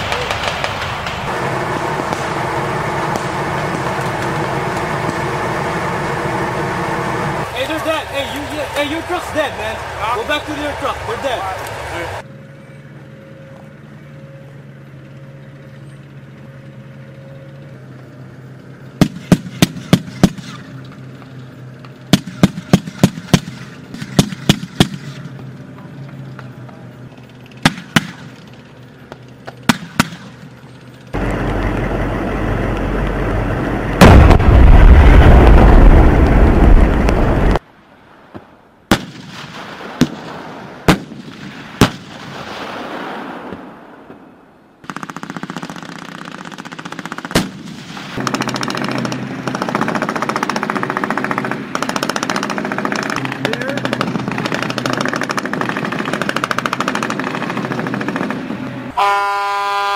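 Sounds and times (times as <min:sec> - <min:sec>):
loud steady rumble: 0:00.0 - 0:37.6, 0:43.7 - 0:59.9
low engine hum: 0:00.0 - 0:37.7
gunshots: 0:19.0 - 0:20.7, 0:22.1 - 0:25.3, 0:27.6 - 0:28.4, 0:29.6 - 0:30.4, 0:34.0 - 0:37.4, 0:38.9 - 0:44.0, 0:44.8 - 0:58.5.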